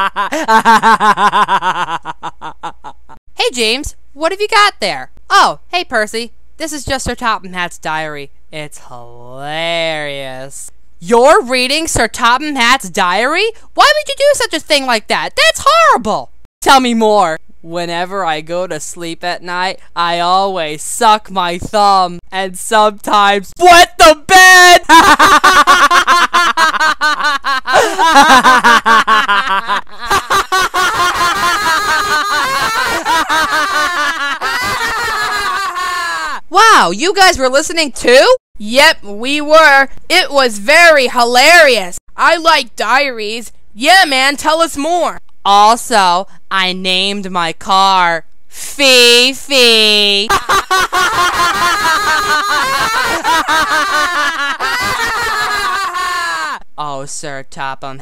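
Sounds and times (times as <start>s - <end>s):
high-pitched voices laughing: 24.9s - 36.4s, 50.3s - 56.6s.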